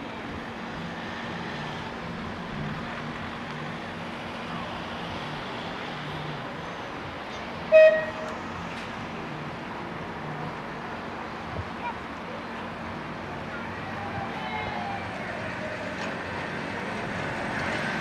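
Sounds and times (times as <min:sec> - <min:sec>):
street and traffic noise: 0:00.0 - 0:18.0
short horn toot: 0:07.7 - 0:08.4.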